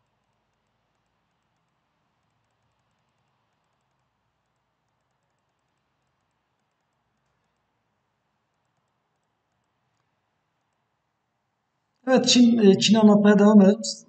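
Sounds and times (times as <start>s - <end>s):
rapid computer clicking: 0.0s - 10.9s.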